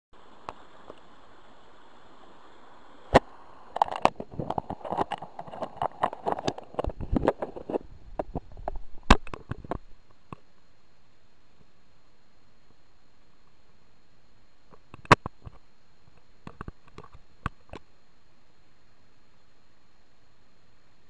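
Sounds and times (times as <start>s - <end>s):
clothing and gear rustling on microphone: 3.9s - 9.9s.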